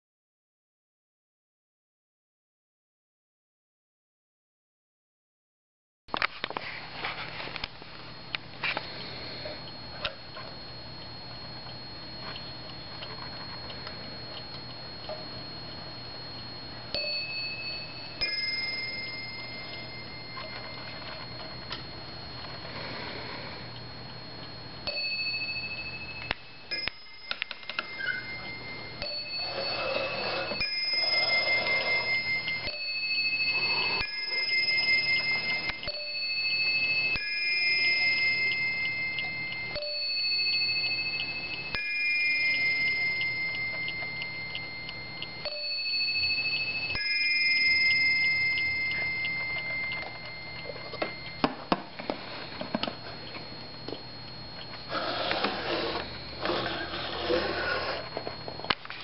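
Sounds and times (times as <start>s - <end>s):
clock striking a bell: 16.8s - 22.7s, 24.8s - 59.0s
clock ticking: 37.0s - 51.4s.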